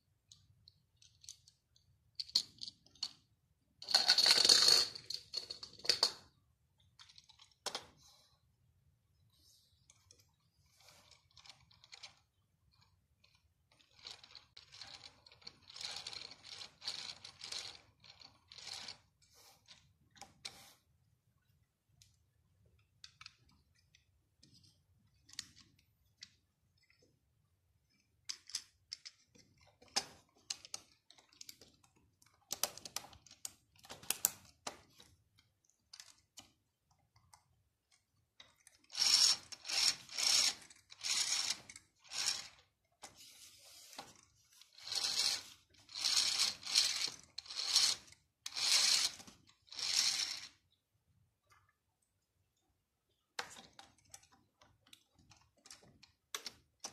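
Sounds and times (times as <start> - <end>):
plastic parts clicking and rattling: 0.2 - 8.0, 9.8 - 20.6, 21.9 - 50.7, 53.1 - 56.9.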